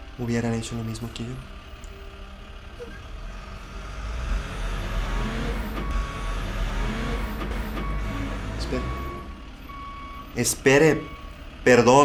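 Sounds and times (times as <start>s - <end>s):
tow truck engine running: 0.0s - 12.0s
reversing alarm beep: 4.0s - 11.5s.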